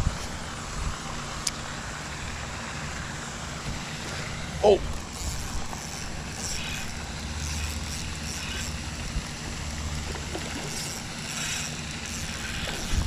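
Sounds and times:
wind rumble on microphone: 0.0s - 1.4s, 12.6s - 13.0s.

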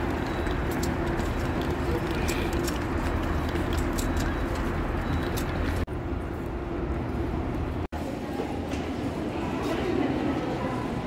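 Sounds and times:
rolling suitcases on stone paving: 0.0s - 5.9s.

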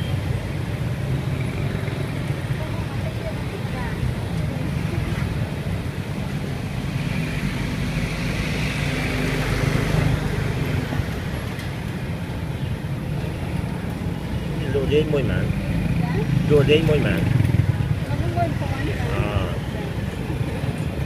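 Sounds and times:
traffic engine rumble: 0.0s - 21.0s
vehicle passing: 13.5s - 21.0s.

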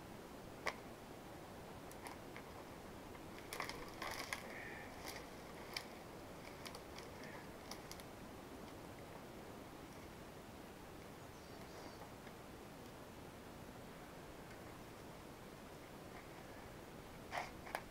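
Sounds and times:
dry twigs snapping: 3.2s - 8.8s.

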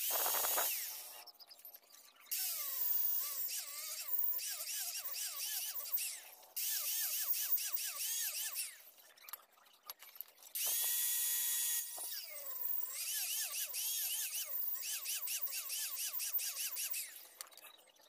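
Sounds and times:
angle grinder whining on metal: 0.0s - 1.2s.

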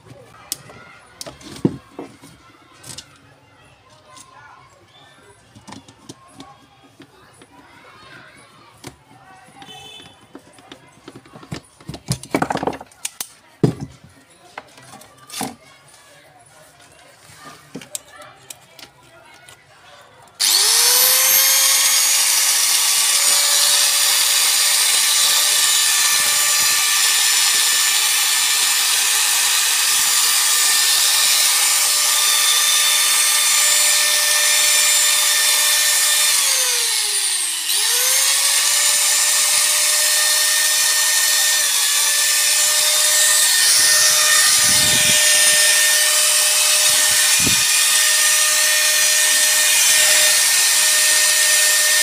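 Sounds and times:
angle grinder motor whining: 20.4s - 52.0s.

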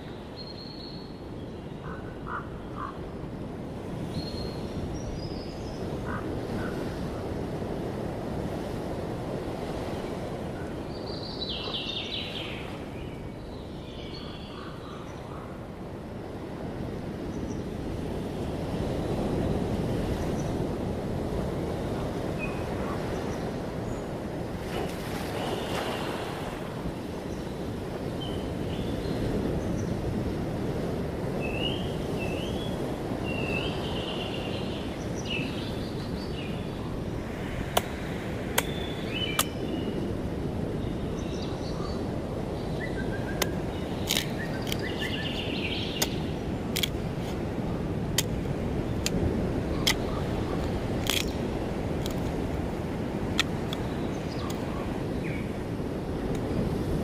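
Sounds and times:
birds chirping: 38.6s - 40.0s, 40.8s - 46.7s, 53.7s - 55.5s.

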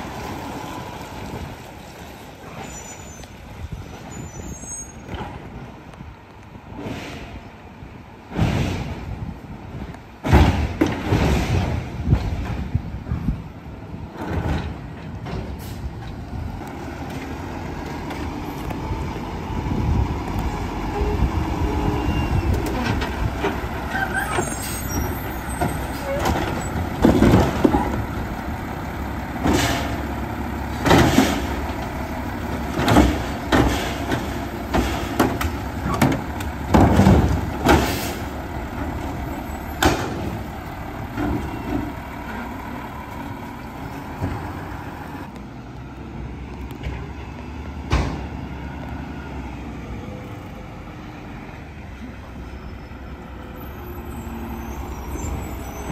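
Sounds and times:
garbage truck diesel engine: 0.0s - 55.9s
carts banging against hopper: 10.2s - 13.3s, 22.5s - 28.1s, 30.7s - 31.8s, 32.5s - 38.2s, 39.7s - 40.4s.

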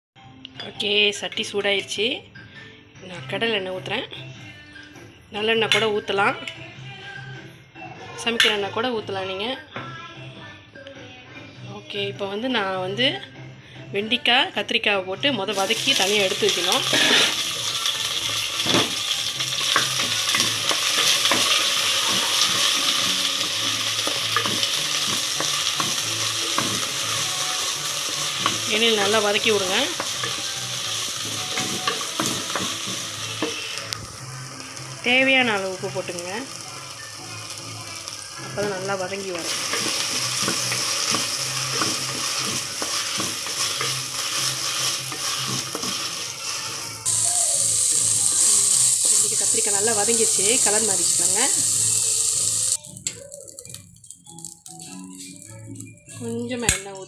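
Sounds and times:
vegetables sizzling in oil: 15.5s - 55.6s.

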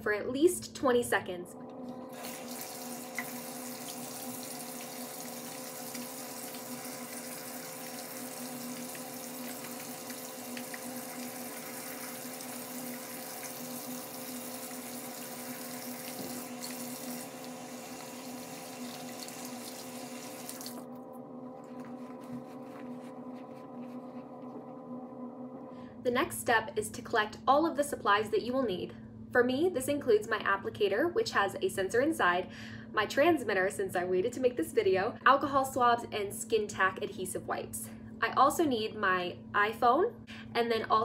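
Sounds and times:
steady hum: 0.0s - 41.0s
faucet running into sink: 2.0s - 20.9s.

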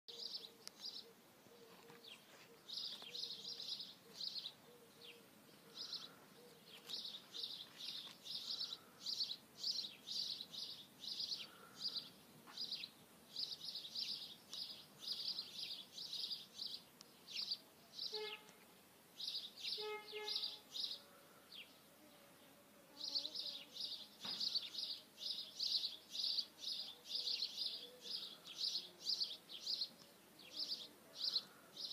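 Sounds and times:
lower pitched bird calls: 0.1s - 18.6s, 19.2s - 21.1s
small bird chirping: 0.1s - 18.6s, 19.2s - 21.7s.

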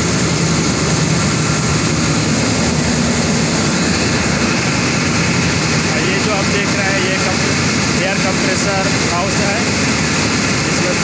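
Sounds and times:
industrial machinery drone: 0.0s - 11.0s.

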